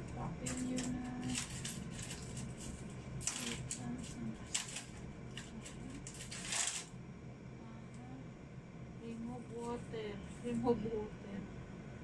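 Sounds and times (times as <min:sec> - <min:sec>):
rustling handling noises: 0:00.4 - 0:06.9.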